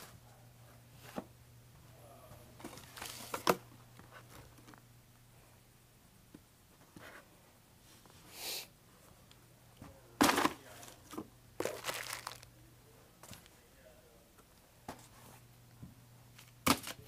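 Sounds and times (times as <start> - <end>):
low steady hum: 0.0 - 17.0
packaging rustling and crinkling: 2.6 - 3.6, 10.3 - 12.5.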